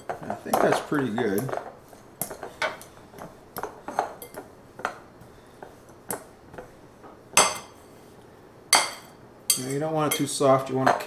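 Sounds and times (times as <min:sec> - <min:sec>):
metal utensil stirring dough: 0:00.0 - 0:05.0.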